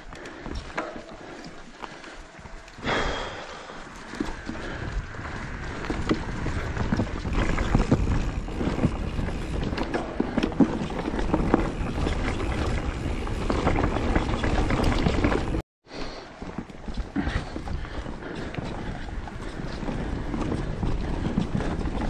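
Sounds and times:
bike tyre rumble: 0.0 - 22.0
bike knocks and rattles: 4.0 - 15.6
wind on microphone: 4.1 - 15.6.

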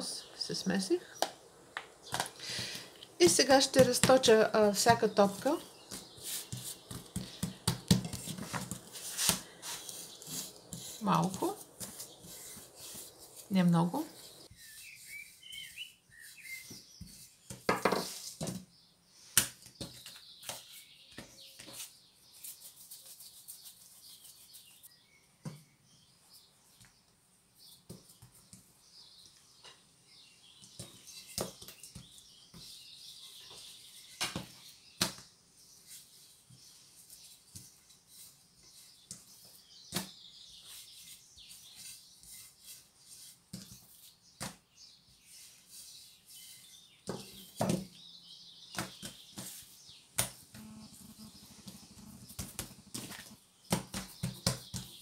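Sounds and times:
rolling pin swishing over dough: 3.2 - 18.5.

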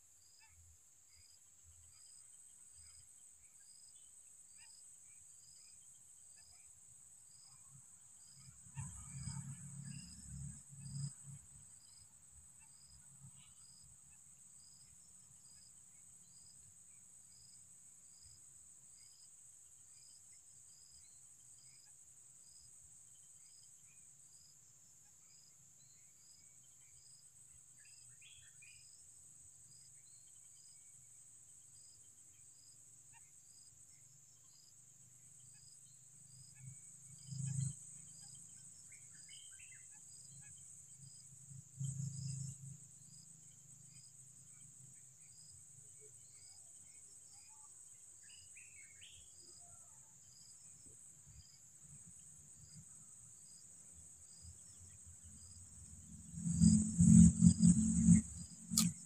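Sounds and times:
insects droning: 0.0 - 59.0
pulsing insect chirp: 0.2 - 59.0.

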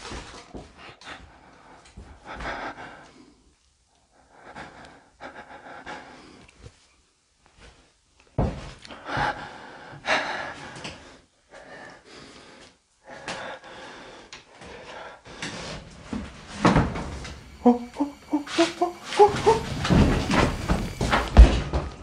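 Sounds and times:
heavy breathing: 1.0 - 6.8, 8.9 - 15.8, 17.2 - 21.4.

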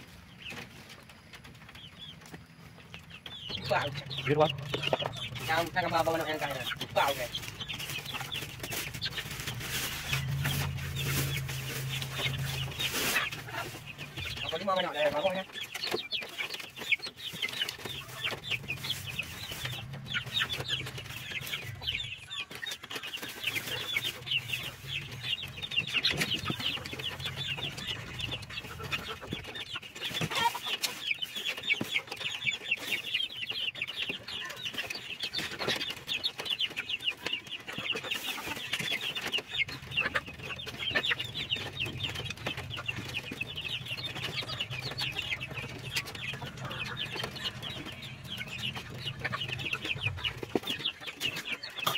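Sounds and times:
chickens clucking: 0.0 - 51.9
plastic bags rustling: 5.3 - 14.5.

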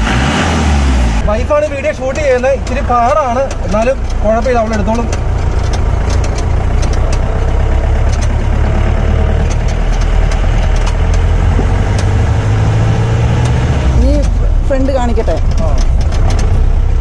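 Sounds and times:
engine running low drone: 0.0 - 17.0.

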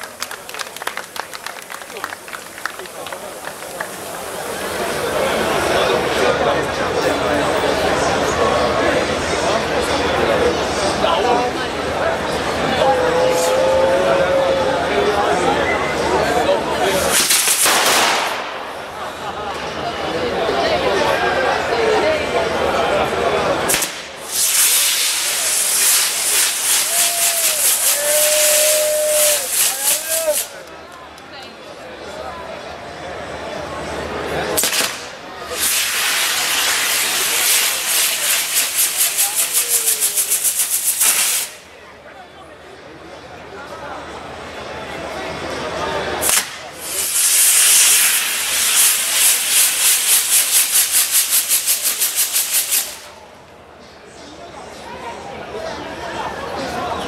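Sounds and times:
fireworks sparks hissing and crackling: 0.0 - 6.2, 16.9 - 18.8, 23.7 - 30.6, 34.6 - 41.6, 46.2 - 53.2
high firework whistle: 24.2 - 30.5, 46.2 - 53.1.

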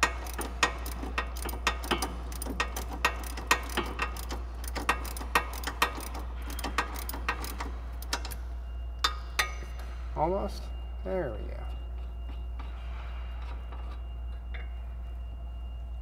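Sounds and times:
ratchet clicking: 0.0 - 8.4.

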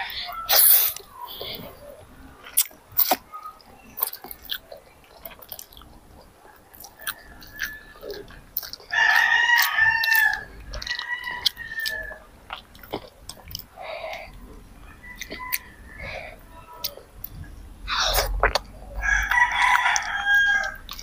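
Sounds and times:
mouth clicks: 0.0 - 19.0
child chewing: 0.0 - 21.0
rooster crowing: 6.5 - 12.3, 14.8 - 16.8, 19.0 - 21.0.

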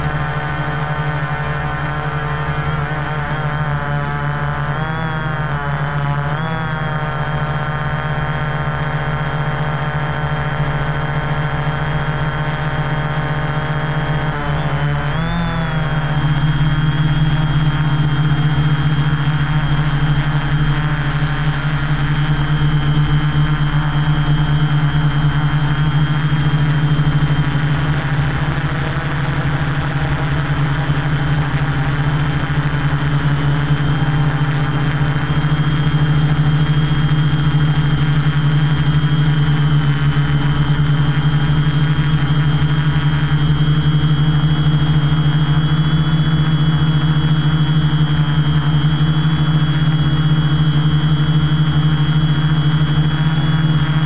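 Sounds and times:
quadcopter motors humming: 0.0 - 54.0.

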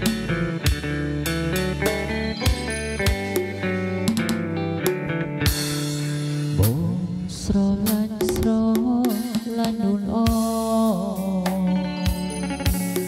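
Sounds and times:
drum strikes: 0.0 - 7.0, 7.8 - 13.0
guitar: 0.0 - 13.0
wavering melodic line: 1.3 - 4.9.

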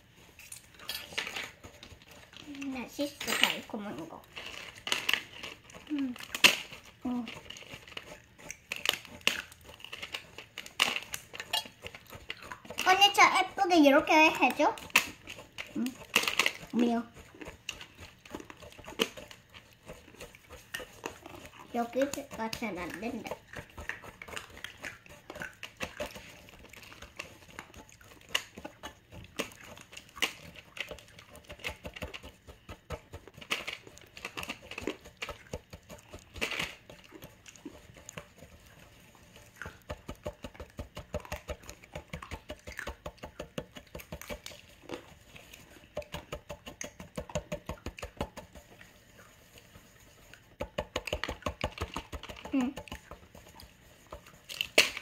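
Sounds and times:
chopsticks scraping metal saucepan: 6.3 - 26.2.

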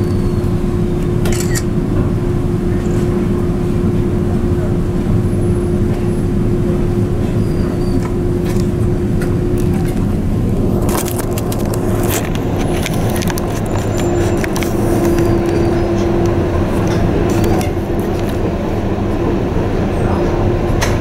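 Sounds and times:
ship engine rumble: 0.0 - 21.0.

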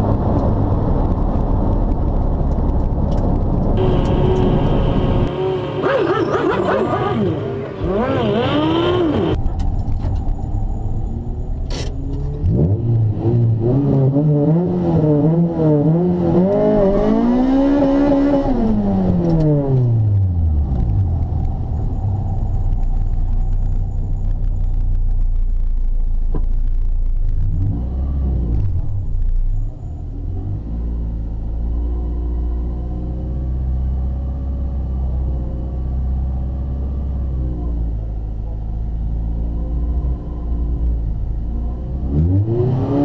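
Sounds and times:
car engine revving: 2.4 - 9.6, 11.1 - 24.3, 39.0 - 43.0.

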